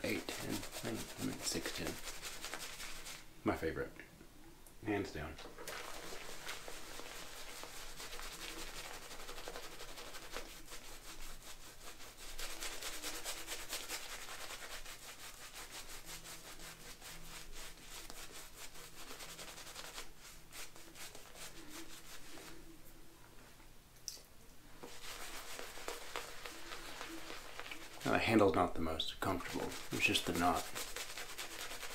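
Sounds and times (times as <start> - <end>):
shaving brush swirling in lather: 0.0 - 3.3, 5.4 - 22.7, 24.8 - 31.9.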